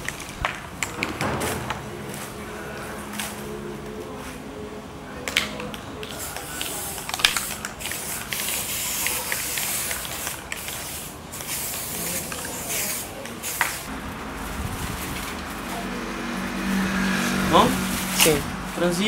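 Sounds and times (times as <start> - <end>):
spray paint can hissing: 6.0 - 13.9.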